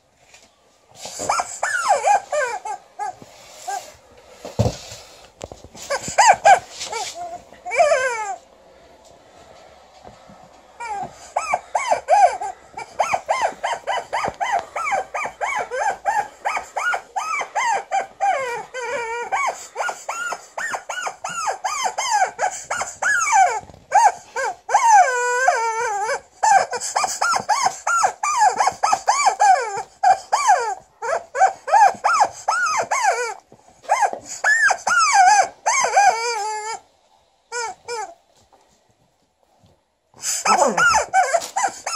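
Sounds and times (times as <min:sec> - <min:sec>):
rubber chicken toy squeaking: 0:01.2 - 0:03.8, 0:10.8 - 0:36.8, 0:37.5 - 0:38.2, 0:40.2 - 0:41.9.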